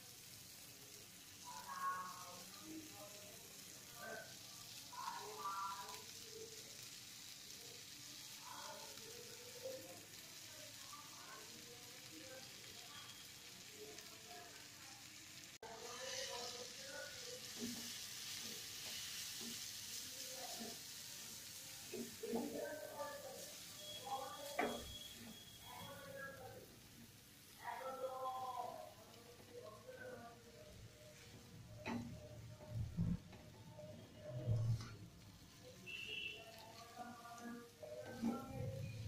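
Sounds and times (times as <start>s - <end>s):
noodles sizzling in hot pan: 0.0s - 39.0s.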